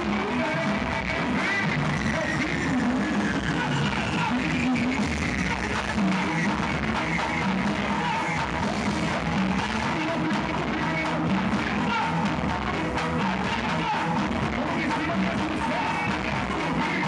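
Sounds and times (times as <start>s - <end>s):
electric guitar: 0.0s - 17.0s.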